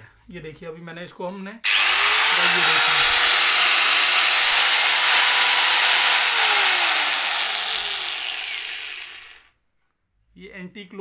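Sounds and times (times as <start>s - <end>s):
angle grinder whining: 1.6s - 9.5s.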